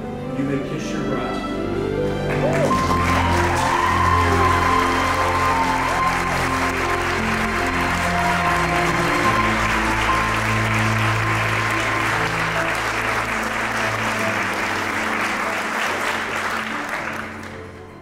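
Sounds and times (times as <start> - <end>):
crowd applauding: 2.2 - 18.0.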